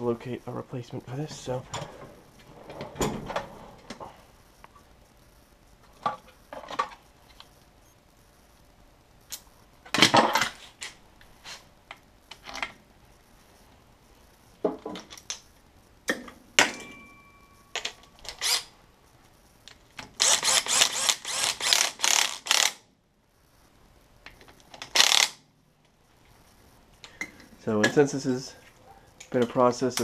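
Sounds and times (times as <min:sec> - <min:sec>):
ringing metal clink: 0:16.6 - 0:17.6.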